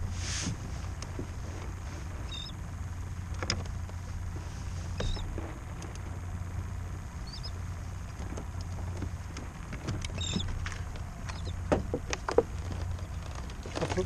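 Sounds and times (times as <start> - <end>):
steady low rumble: 0.0 - 14.0
fishing tackle clicks and knocks: 8.2 - 14.0.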